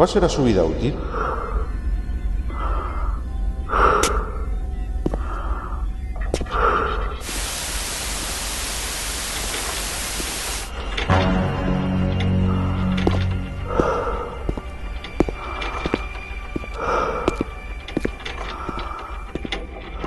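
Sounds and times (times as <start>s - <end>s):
low sustained music tones: 0.0s - 20.0s
electronic static hiss: 7.2s - 10.8s.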